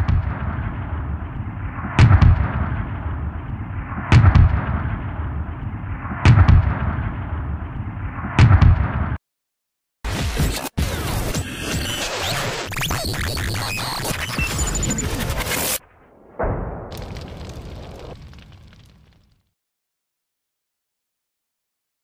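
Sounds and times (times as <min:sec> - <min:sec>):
gunshot-like booms: 0:00.0 - 0:09.2, 0:16.0 - 0:19.0.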